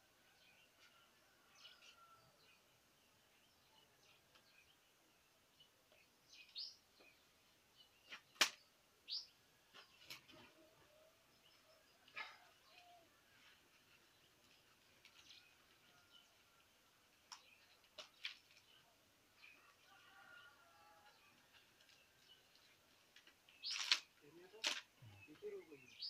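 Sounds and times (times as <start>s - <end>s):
bird chirps: 23.5s - 26.0s.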